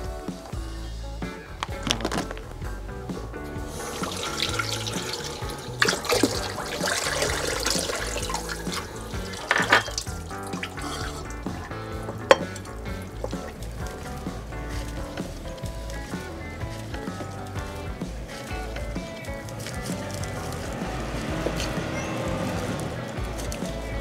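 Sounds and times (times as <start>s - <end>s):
background music: 0.0s - 24.0s
tap water running into bowl: 3.7s - 14.0s.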